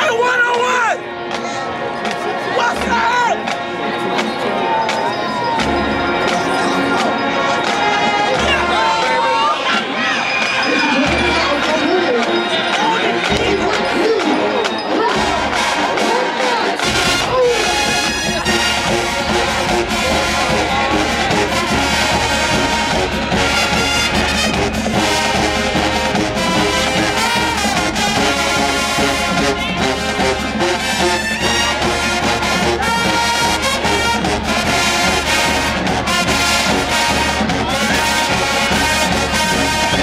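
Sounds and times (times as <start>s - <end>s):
marching band brass: 0.0s - 40.0s
cymbals: 3.3s - 40.0s
snare and bass drums: 16.8s - 40.0s.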